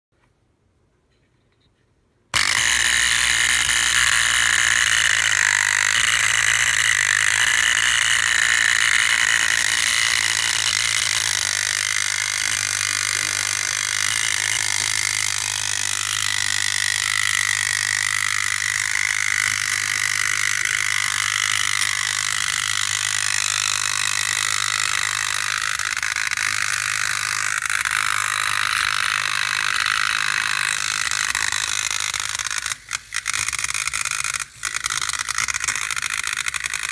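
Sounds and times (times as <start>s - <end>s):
clockwork toy motor whirring: 2.3s - 36.9s.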